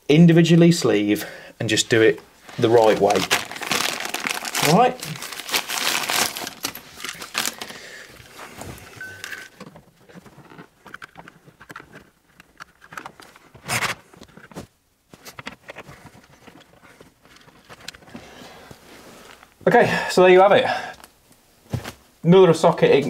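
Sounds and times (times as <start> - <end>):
wrapping rustling: 1.7 - 19.6
plastic clicks and scrapes: 9.2 - 14.6.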